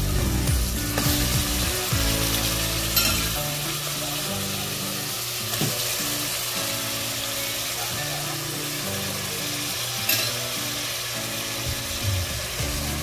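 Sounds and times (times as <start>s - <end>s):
chicken sizzling in hot oil: 0.0s - 13.0s
spoon hitting metal pot: 3.0s - 3.3s, 10.1s - 10.3s.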